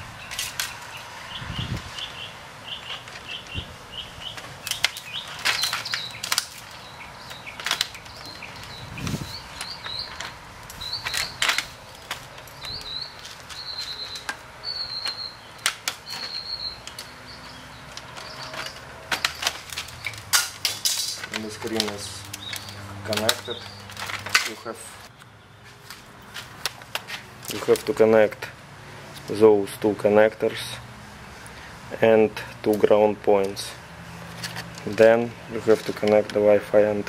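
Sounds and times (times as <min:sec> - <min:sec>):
small bird chirping: 0:00.2 - 0:20.2, 0:21.4 - 0:24.0
laptop parts clicking: 0:04.3 - 0:08.8, 0:09.5 - 0:24.6.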